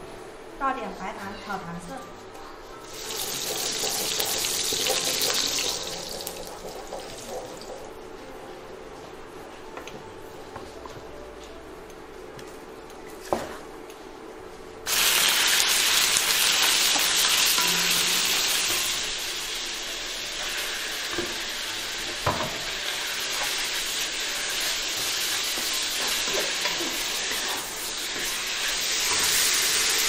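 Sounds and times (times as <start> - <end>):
meat sizzling in hot oil: 2.8 - 7.8, 14.9 - 30.0.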